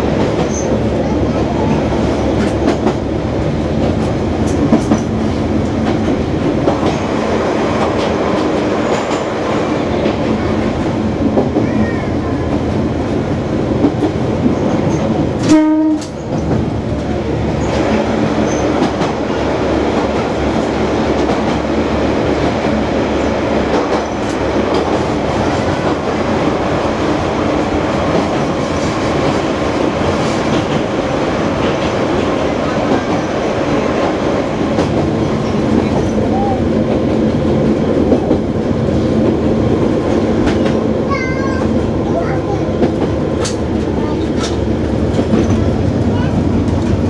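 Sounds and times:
diesel railcar running on rails: 0:00.0 - 0:47.0
railcar horn blast: 0:15.4 - 0:16.2.

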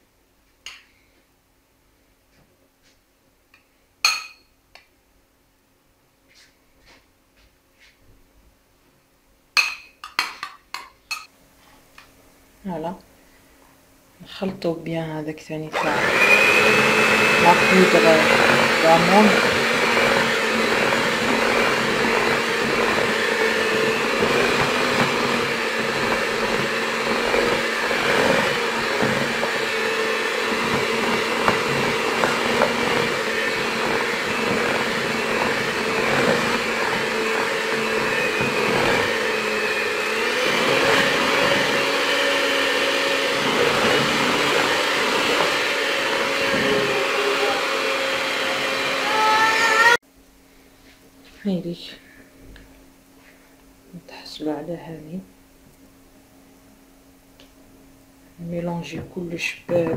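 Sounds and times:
electric hand mixer whisking batter: 0:15.7 - 0:50.0.

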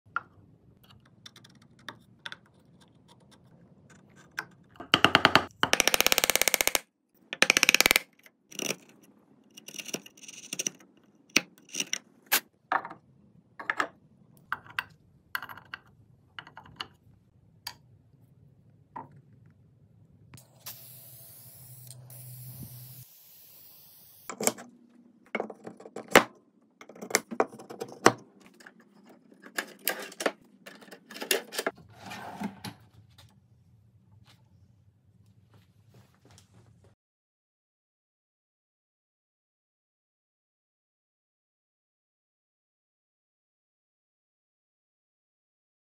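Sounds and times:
steady hiss: 0:20.4 - 0:24.3
drawer sliding open: 0:29.6 - 0:32.9.

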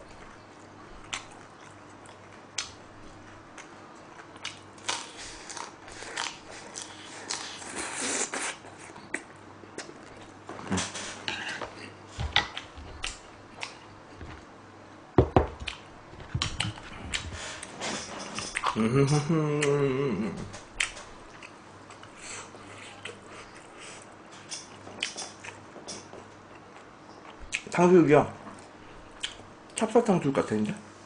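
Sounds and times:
chewing and crunching fried food: 0:00.0 - 0:14.5.

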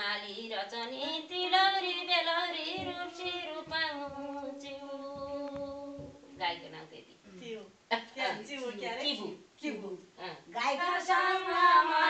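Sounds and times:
woman singing unaccompanied: 0:00.0 - 0:07.0, 0:10.2 - 0:12.0.

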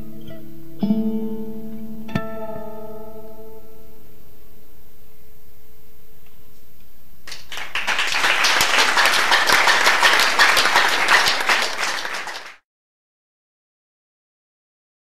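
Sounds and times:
audience applauding: 0:07.3 - 0:12.6.

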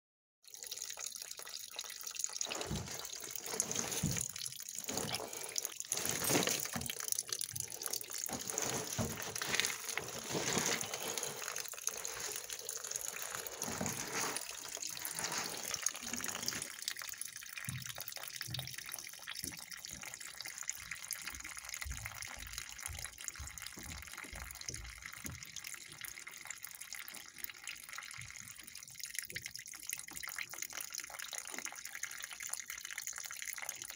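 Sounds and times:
water splashing from pipe onto dirt: 0:00.5 - 0:20.2.

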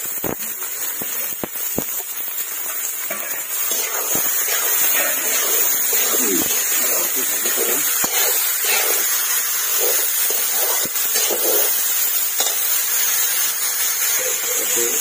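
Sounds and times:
frying hiss: 0:00.0 - 0:15.0
metal spatula scraping pan: 0:03.1 - 0:12.8.

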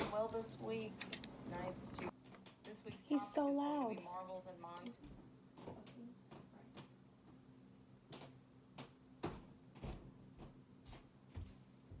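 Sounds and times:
soft clicks: 0:04.7 - 0:05.0.

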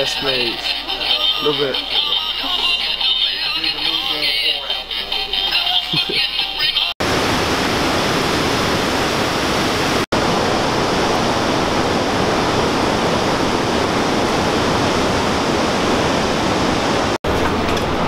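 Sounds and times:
water rushing over weir: 0:07.0 - 0:18.0.

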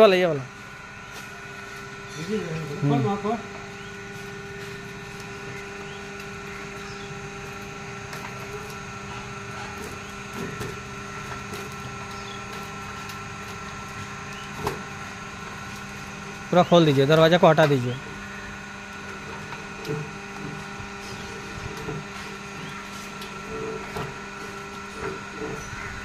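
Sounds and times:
electric pump motor humming: 0:00.0 - 0:26.0.

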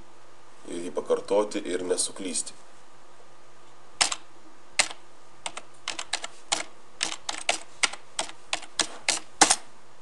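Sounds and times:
computer keyboard key clicks: 0:04.0 - 0:04.2, 0:04.8 - 0:09.6.

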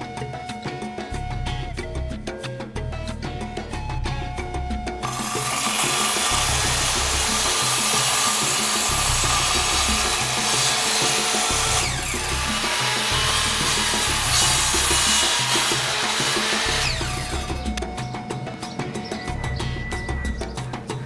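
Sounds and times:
background music: 0:00.0 - 0:21.0
circular saw cutting wood: 0:05.0 - 0:17.8.

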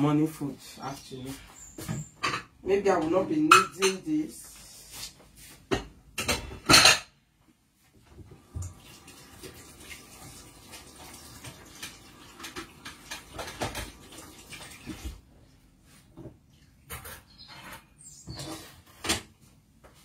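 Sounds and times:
water running from tap: 0:08.4 - 0:15.2.

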